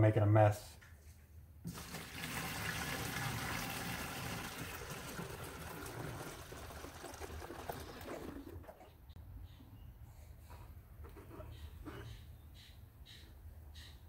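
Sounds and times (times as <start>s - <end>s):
liquid pouring and splashing: 1.7s - 8.6s.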